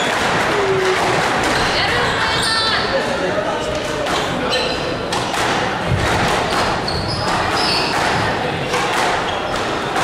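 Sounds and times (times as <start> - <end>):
squash ball hitting rackets and walls: 0.0 - 2.0, 3.7 - 10.0
shoe squeaks on wooden floor: 4.4 - 5.0, 6.4 - 8.2, 9.2 - 9.8.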